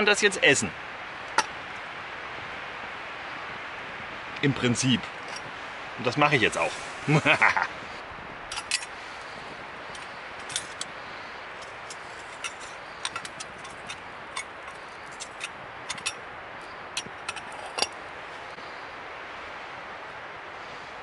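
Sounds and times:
steady hiss: 0:00.0 - 0:21.0.

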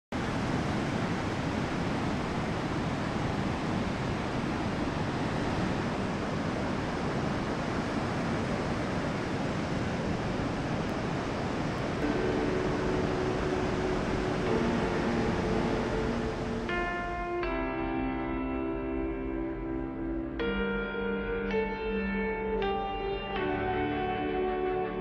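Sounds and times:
steady rushing noise: 0:00.1 - 0:20.6
held musical tones: 0:12.0 - 0:25.0.

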